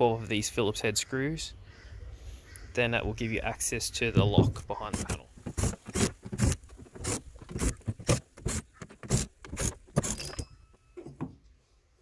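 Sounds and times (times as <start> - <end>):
cordless drill: 5.0 - 10.4
screws clinking in metal tray: 10.0 - 10.8.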